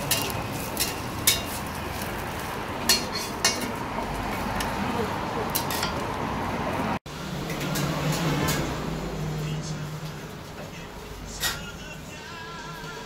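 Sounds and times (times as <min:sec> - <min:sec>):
metal spatula clinking on griddle: 0:00.0 - 0:01.6, 0:02.9 - 0:03.8, 0:05.5 - 0:06.0.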